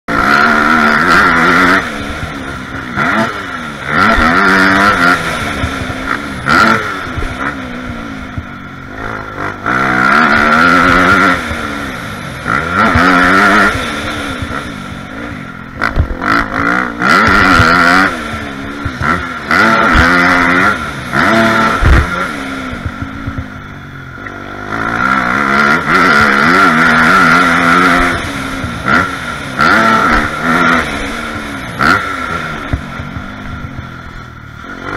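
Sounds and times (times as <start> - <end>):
dirt bike engine revving: 0.1 - 34.9.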